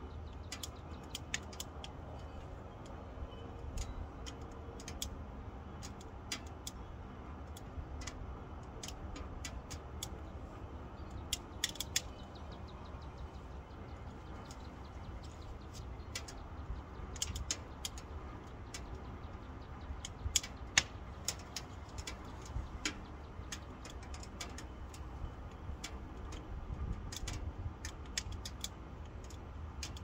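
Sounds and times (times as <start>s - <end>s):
low steady rumble: 0.0s - 30.0s
wood fire crackling: 7.2s - 30.0s.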